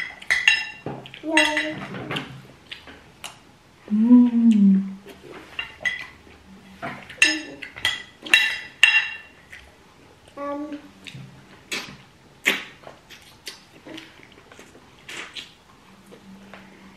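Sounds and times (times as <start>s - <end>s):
cutlery clinking on plates: 0.0s - 2.3s, 5.4s - 6.2s, 6.8s - 9.4s
person humming: 3.9s - 5.0s.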